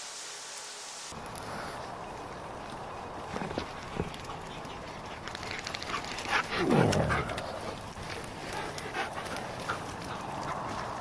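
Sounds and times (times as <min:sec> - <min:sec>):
faint scattered clicks: 0:02.6 - 0:11.0.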